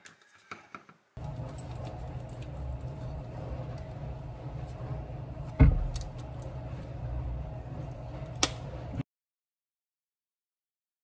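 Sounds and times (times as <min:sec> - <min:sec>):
steady low hum: 0:01.2 - 0:09.0
heavy thud: 0:05.6 - 0:05.9.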